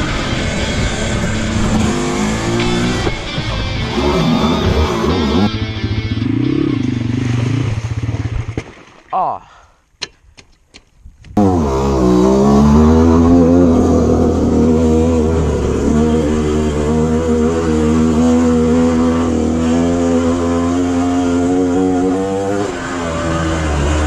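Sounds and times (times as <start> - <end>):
dirt bike engine revving: 0.0 - 8.6, 11.4 - 24.0.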